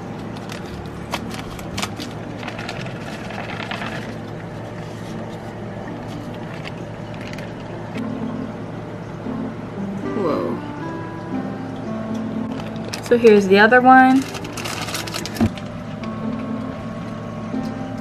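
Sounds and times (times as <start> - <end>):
low hum: 0.0 - 18.0
plastic bag crinkling: 0.2 - 7.7, 12.5 - 15.9.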